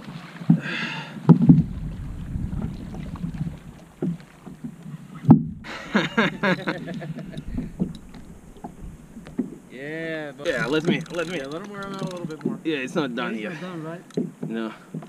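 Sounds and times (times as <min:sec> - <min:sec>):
knocks and thumps: 0:01.3 - 0:05.7, 0:07.1 - 0:09.8
wind rumbling over microphone: 0:01.3 - 0:11.6.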